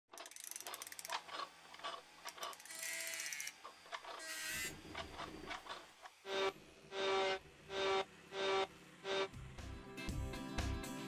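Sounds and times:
ratcheting clicks: 0.1 - 4.1.

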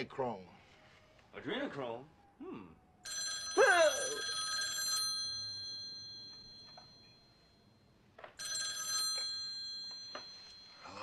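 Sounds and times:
telephone bell ringing: 3.0 - 11.0.

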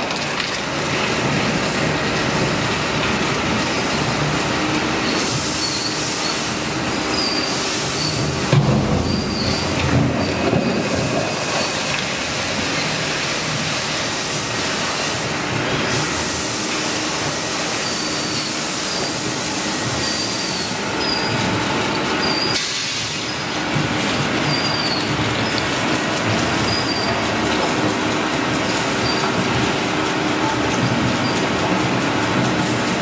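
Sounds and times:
short high squeaks: 7.1 - 8.3, 9.0 - 10.9, 20.0 - 21.4, 22.2 - 23.4, 24.4 - 25.1.

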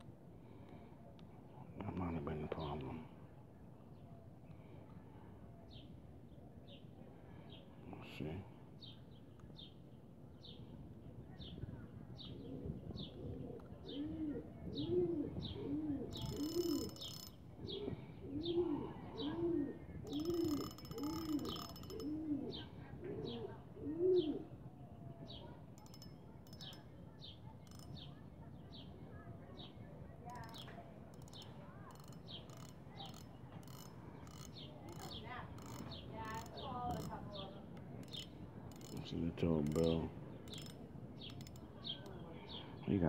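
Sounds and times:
pigeon cooing: 12.4 - 24.5
small bird chirping: 14.7 - 18.6, 19.2 - 23.6, 25.2 - 42.8
short bursts of rattling: 16.2 - 17.4, 38.0 - 41.7.

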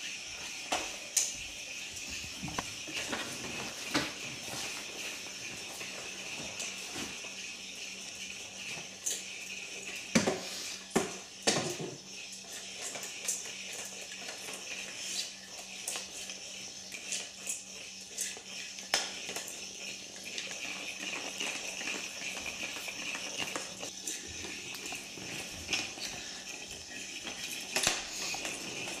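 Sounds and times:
toy ball whirring: 0.0 - 29.0.

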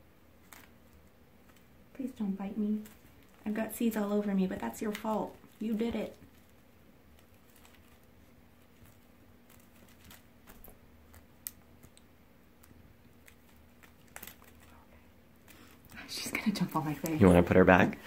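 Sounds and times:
small clicks and crackles: 0.4 - 17.2.

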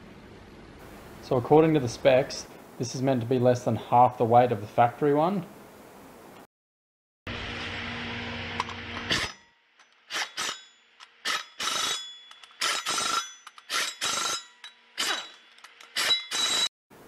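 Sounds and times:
impact wrench bursts: 8.6 - 16.7.

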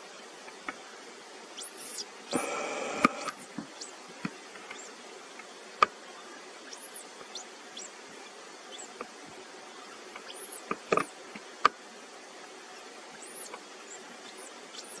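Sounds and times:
low steady hiss: 0.0 - 15.0
faint high-pitched chirps: 1.5 - 4.0, 4.7 - 5.0, 6.0 - 9.0, 9.7 - 11.2, 12.7 - 15.0
sharp clicks: 2.3 - 3.5.

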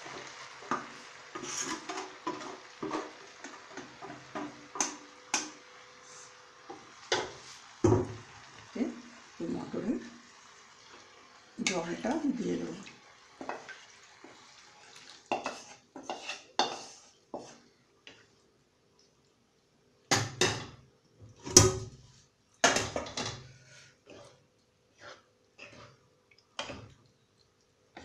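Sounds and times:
cookware clattering: 22.6 - 23.4.

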